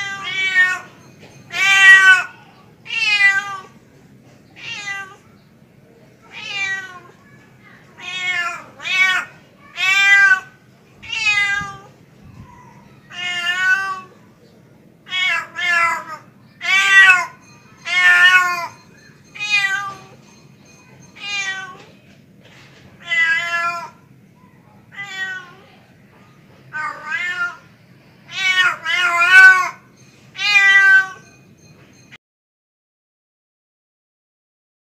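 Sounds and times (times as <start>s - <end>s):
cat meowing: 0.0s - 2.3s, 2.9s - 3.7s, 4.6s - 5.2s, 6.3s - 7.2s, 8.0s - 14.1s, 15.0s - 18.8s, 19.4s - 20.1s, 21.2s - 21.9s, 23.0s - 24.1s, 24.9s - 25.7s, 26.7s - 27.7s, 28.3s - 29.8s, 30.4s - 31.3s.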